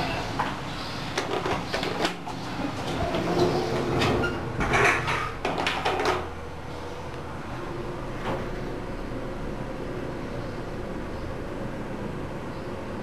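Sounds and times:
elevator hum: 0:06.1 - 0:13.0.

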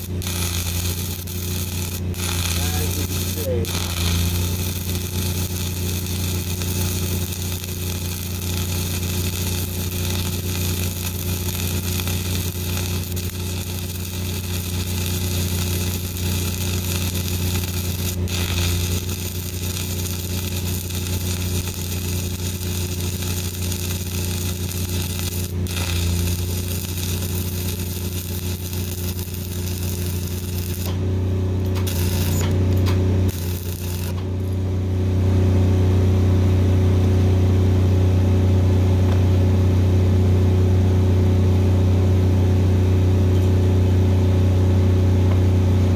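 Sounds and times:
crackling welding arc: 0:00.0 - 0:31.0, 0:31.6 - 0:34.6
low engine hum: 0:29.6 - 0:45.9.

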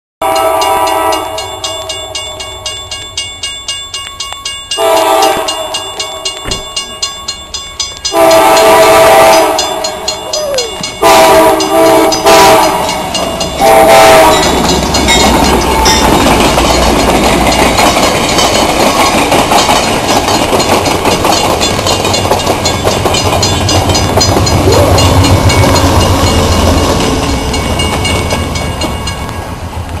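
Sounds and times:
train horn blasts: 0:00.2 - 0:01.7, 0:04.8 - 0:06.3, 0:08.1 - 0:14.7
crossing bell ringing: 0:00.2 - 0:30.0
wheel and rail noise: 0:00.2 - 0:30.0
low locomotive rumble: 0:00.3 - 0:30.0.

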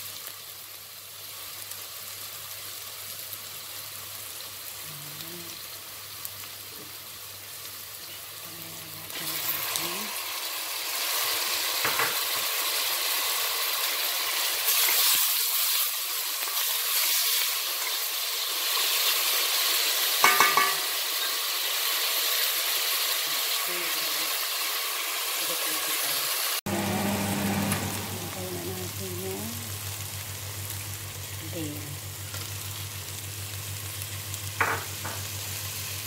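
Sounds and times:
vegetables sizzling in hot oil: 0:00.0 - 0:36.0
low hum: 0:26.7 - 0:34.6.

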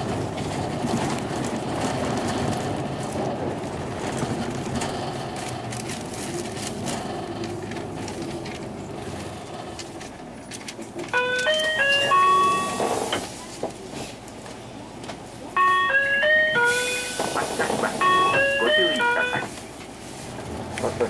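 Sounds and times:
diesel bus running: 0:00.0 - 0:21.0
four-note electronic chime: 0:18.0 - 0:19.5.

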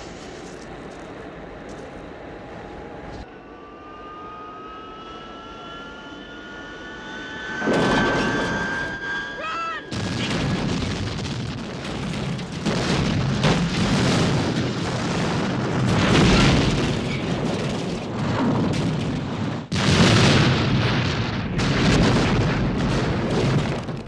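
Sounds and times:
continuous rumbling din: 0:00.0 - 0:24.0
explosion blasts: 0:09.8 - 0:24.0.

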